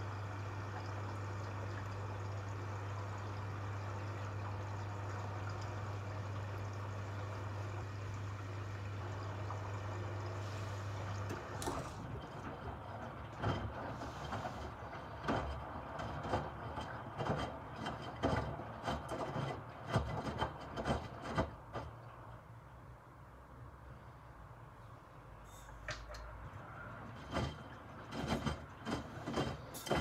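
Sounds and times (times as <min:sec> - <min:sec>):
washing machine drum tumbling cloths: 0:00.0 - 0:22.4, 0:25.6 - 0:30.0.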